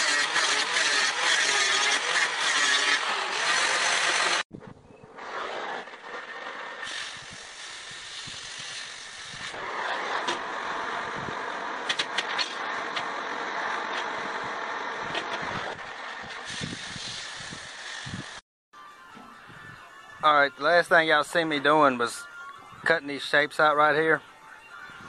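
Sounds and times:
cutting torch hissing: 6.8s - 11.1s, 16.4s - 18.4s.

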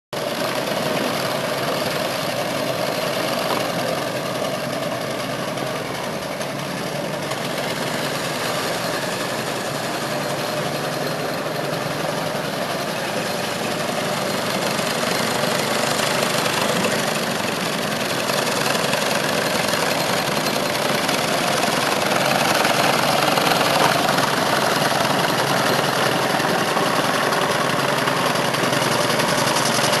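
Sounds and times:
model steam engine running: 0.2s - 30.0s
steam exhaust: 0.2s - 30.0s
mechanical clatter: 26.7s - 30.0s.

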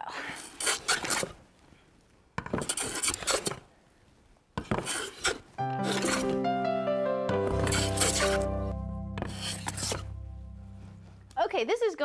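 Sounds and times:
hand plane scraping wood: 0.4s - 1.4s, 2.4s - 3.6s, 4.6s - 6.4s, 7.3s - 10.2s.

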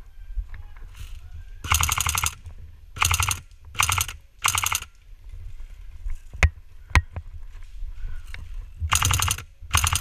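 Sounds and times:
airsoft gun full-auto bursts: 1.6s - 2.4s, 3.0s - 4.9s, 8.9s - 10.0s.

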